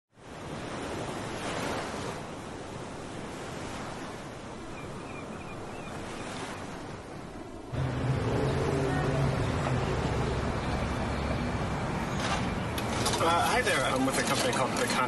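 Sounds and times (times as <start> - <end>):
waves washing on shore: 0.2 - 15.0
city traffic rumble: 7.7 - 15.0.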